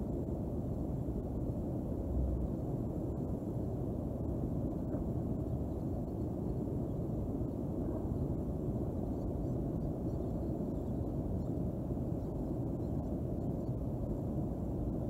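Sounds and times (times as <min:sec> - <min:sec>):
low outdoor rumble: 0:00.0 - 0:15.0.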